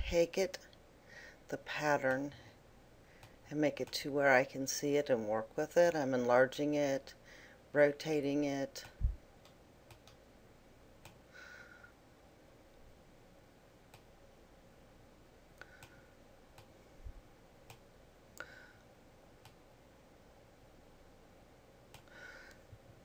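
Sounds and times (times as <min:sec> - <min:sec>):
computer mouse clicks: 0:08.8 - 0:10.2, 0:15.6 - 0:16.7, 0:21.9 - 0:22.1.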